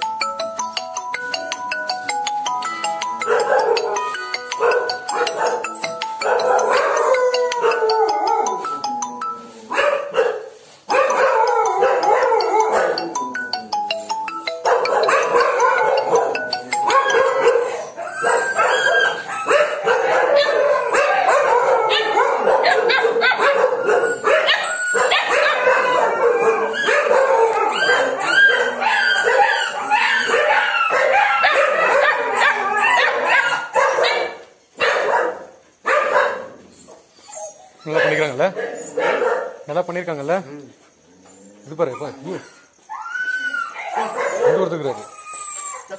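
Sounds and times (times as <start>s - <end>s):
dogs barking: 3.1s - 8.8s, 9.7s - 13.5s, 14.6s - 36.7s, 37.8s - 39.8s, 43.7s - 45.1s.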